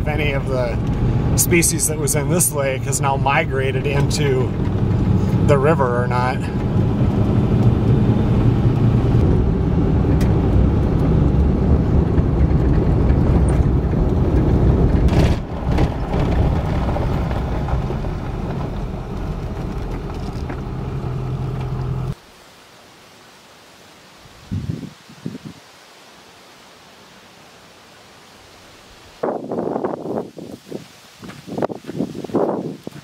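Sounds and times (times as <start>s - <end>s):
tyres on gravel road: 0.0s - 22.2s
vehicle engine rumble: 0.0s - 22.2s
faint outdoor background: 0.0s - 33.0s.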